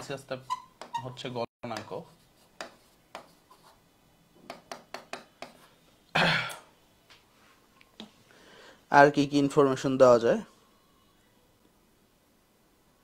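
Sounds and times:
marker pen on whiteboard: 0.0 - 3.8, 4.4 - 6.0
man clearing his throat: 6.1 - 6.7.

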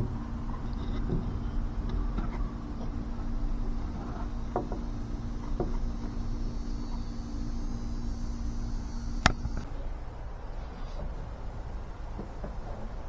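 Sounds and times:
electric power tool running: 3.8 - 9.7.

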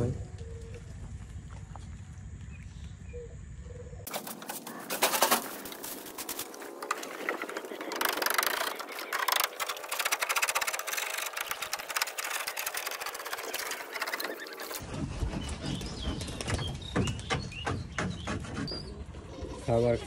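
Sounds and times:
hand tool scraping wood: 4.1 - 15.6.

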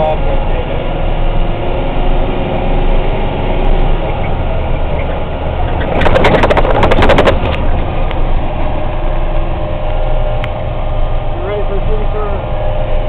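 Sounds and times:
truck engine drone: 0.0 - 13.0
cab rattling and clattering: 4.9 - 8.2.

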